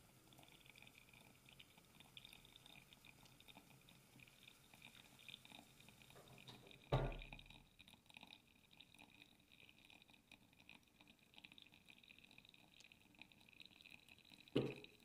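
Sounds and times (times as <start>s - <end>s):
wet coffee grounds fizzing: 0.0s - 15.0s
thump: 6.9s - 7.3s, 14.6s - 14.8s.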